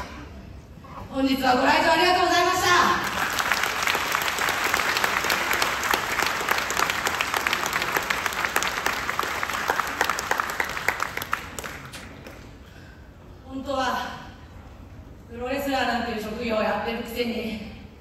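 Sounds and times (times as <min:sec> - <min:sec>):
audience applauding: 0:03.0 - 0:12.6.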